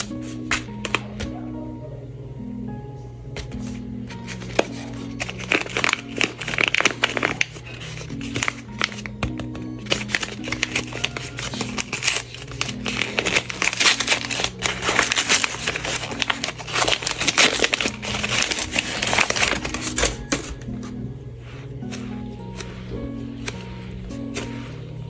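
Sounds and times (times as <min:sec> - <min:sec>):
soft background music: 0:00.0 - 0:25.0
paper crinkling and tearing: 0:03.4 - 0:20.8.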